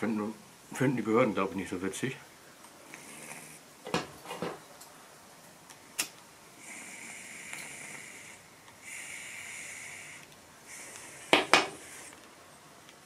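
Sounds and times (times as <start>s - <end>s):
lighter gas hissing: 6.6s - 12.4s.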